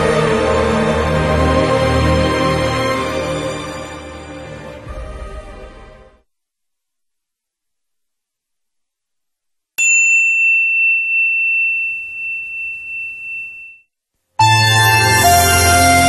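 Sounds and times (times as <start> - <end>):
loud music: 0.0 - 6.2, 14.4 - 16.0
bright chime: 9.8 - 13.9.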